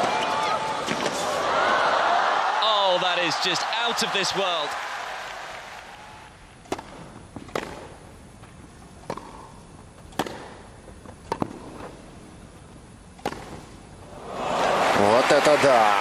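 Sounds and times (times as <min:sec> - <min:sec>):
rackets hitting tennis ball: 0:06.6 - 0:08.0, 0:09.0 - 0:12.0, 0:13.2 - 0:13.8.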